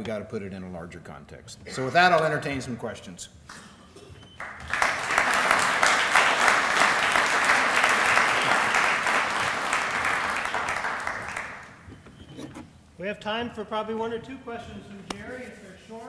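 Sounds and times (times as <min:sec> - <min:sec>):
audience applauding: 0:04.4 - 0:11.8.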